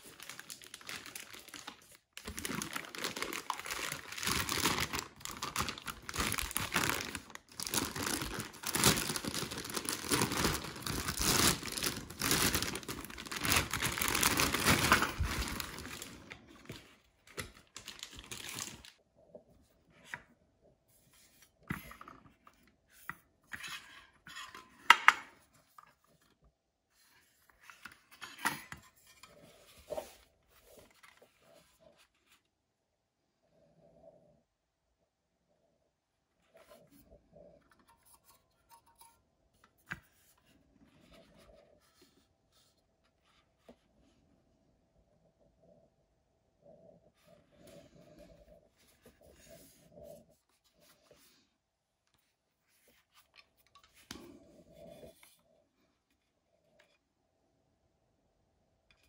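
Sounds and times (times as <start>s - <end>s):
plastic bag crinkling: 0.0s - 19.0s.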